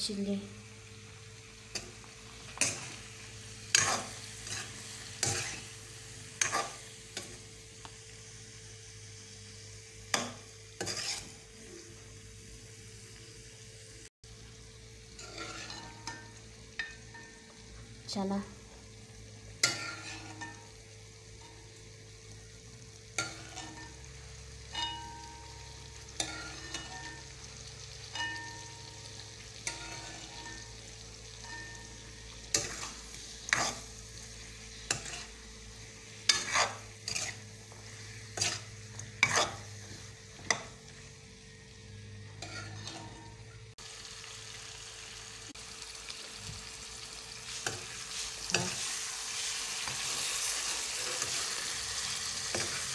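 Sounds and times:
faint sizzle of frying: 0.0 - 52.9
ladle scraping and knocking pan: 36.3 - 37.4, 38.4 - 40.6.

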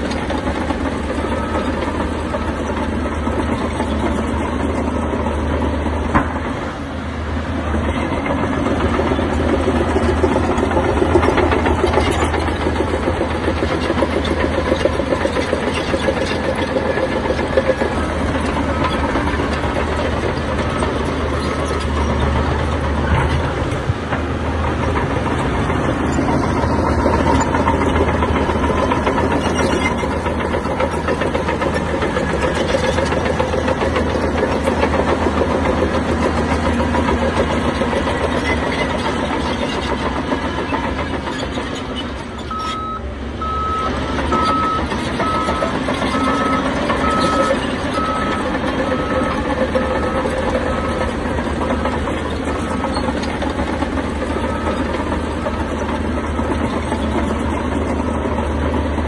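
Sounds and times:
diesel machinery engine running: 0.0 - 59.0
reversing alarm beeping: 42.4 - 51.2.

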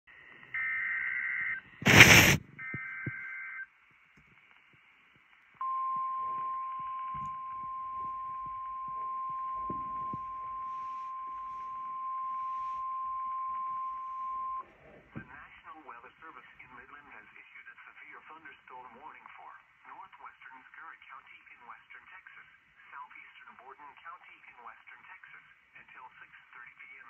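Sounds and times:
faint radio crackle: 0.2 - 27.0
radio static burst: 1.0 - 3.2
steady warning alarm tone: 5.6 - 14.6.

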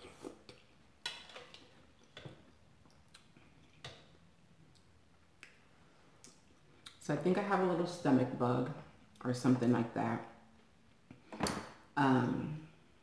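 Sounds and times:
soft chewing: 1.4 - 7.0
mouth clicks and smacks: 2.8 - 3.8.

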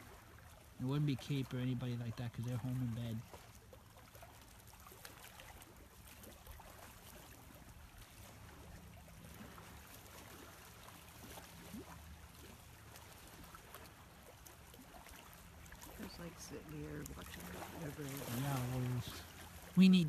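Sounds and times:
distant motorboat engine drone: 0.0 - 20.0.

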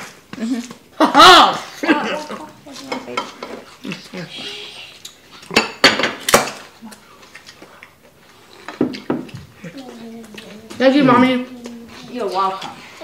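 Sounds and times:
dishes and utensils clinking: 2.7 - 4.1, 5.4 - 6.7
quiet voices: 9.6 - 12.8.

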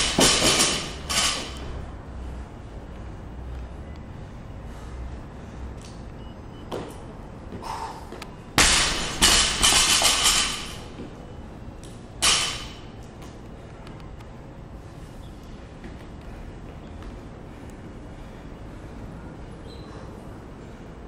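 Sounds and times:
barbell bang on platform: 0.0 - 1.6, 8.6 - 10.8
weights clattering and rattling: 0.0 - 1.6, 8.6 - 10.9.

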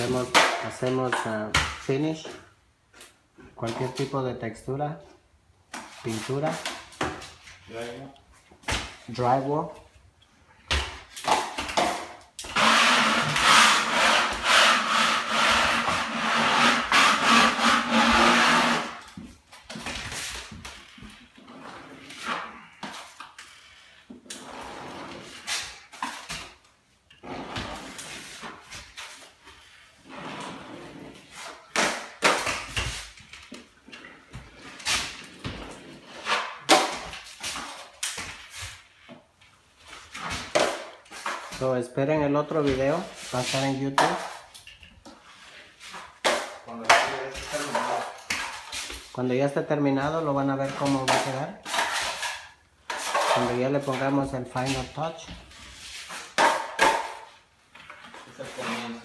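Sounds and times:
drywall scraping and grinding: 11.0 - 41.8, 45.1 - 49.3, 50.0 - 59.0
drywall knife scraping: 11.2 - 26.5, 50.6 - 57.3.

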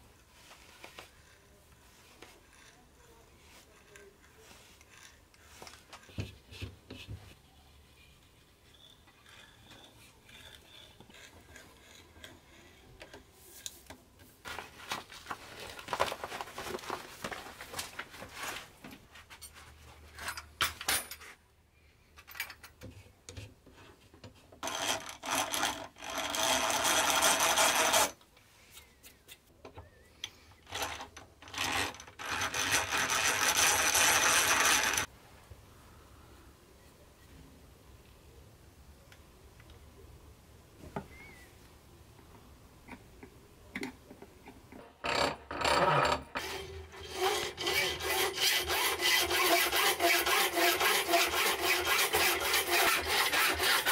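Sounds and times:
hand tools scraping and clinking: 1.2 - 7.4, 8.0 - 13.9, 18.4 - 21.4
hand drill boring into wood: 24.6 - 28.2, 30.6 - 35.1, 45.0 - 53.9.

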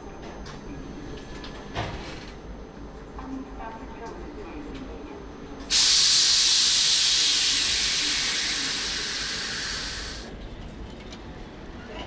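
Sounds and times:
train air brake hissing: 5.7 - 10.3.

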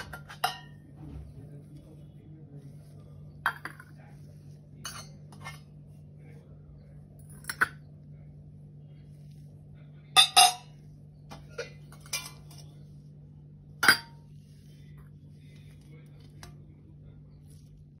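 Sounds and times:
metal vessels clinking: 0.0 - 1.3, 4.8 - 5.7, 7.2 - 7.9, 10.1 - 12.8, 13.8 - 14.4
low steady hum: 0.0 - 18.0.

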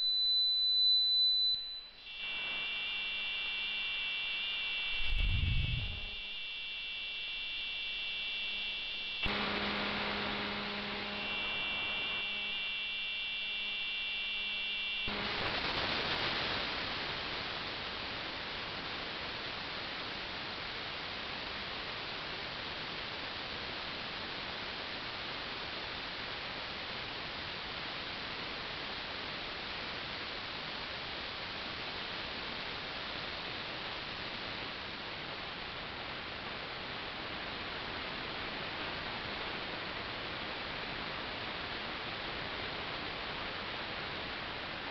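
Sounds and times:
high whining tones: 0.0 - 15.7
radio hiss: 2.1 - 13.1, 14.8 - 28.4
radio low hum: 4.8 - 12.6, 15.1 - 17.4.

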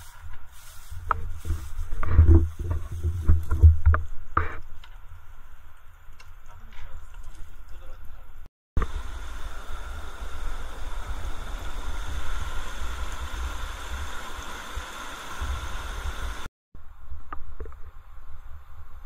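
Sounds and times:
stream rushing over boulders: 8.8 - 16.5.

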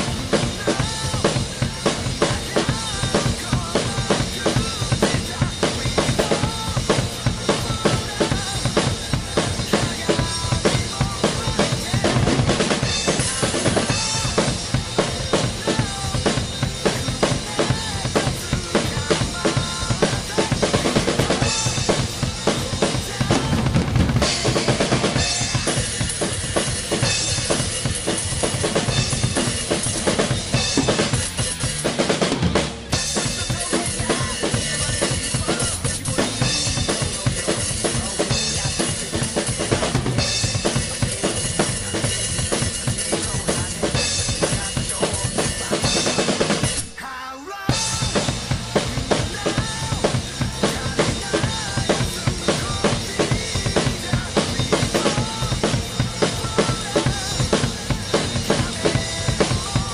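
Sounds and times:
bass drum: 0.0 - 46.8, 47.7 - 59.9
snare drum: 30.0 - 31.2.

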